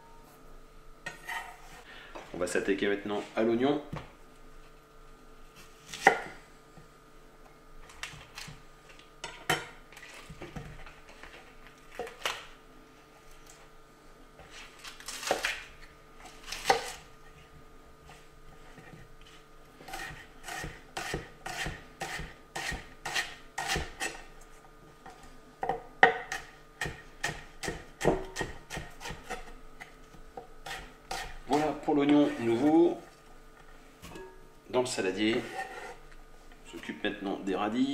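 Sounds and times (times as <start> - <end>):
knife chopping on wooden board: 19.9 - 24.2, 25.7 - 29.4.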